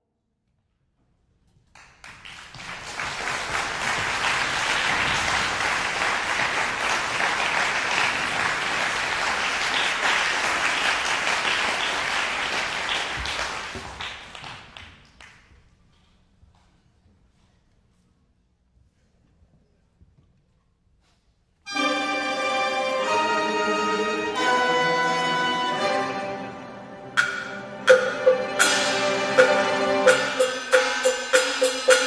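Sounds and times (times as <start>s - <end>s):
audience applauding: 1.7s - 15.5s.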